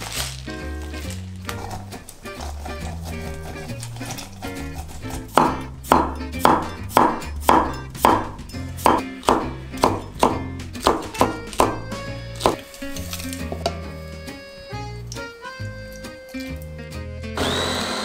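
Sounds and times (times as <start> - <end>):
background music: 0.0 - 18.0
cleaver chopping on wooden board: 2.4 - 12.6.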